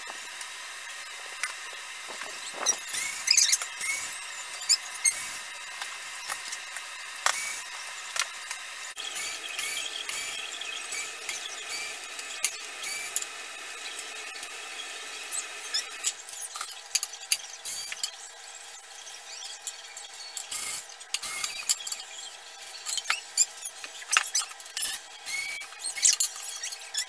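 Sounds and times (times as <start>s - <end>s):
cordless drill running: 0.0s - 18.1s, 20.4s - 22.0s, 22.6s - 27.0s
hinges and screws clicking: 15.3s - 27.0s.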